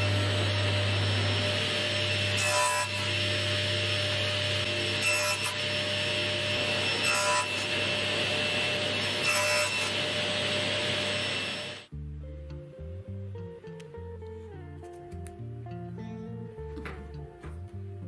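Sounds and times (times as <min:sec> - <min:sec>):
table saw cutting plywood: 0:00.0 - 0:11.9.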